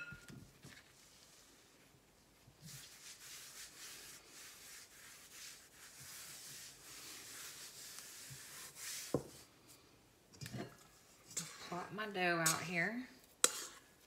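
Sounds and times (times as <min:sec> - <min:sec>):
hand swishing flour on a mat: 0:00.9 - 0:09.5.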